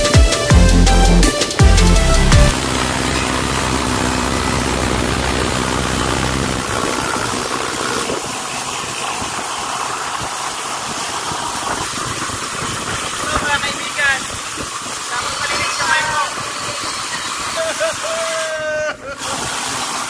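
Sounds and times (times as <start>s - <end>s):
mechanical drone with hiss: 0.0s - 20.0s
low hum: 0.5s - 8.4s.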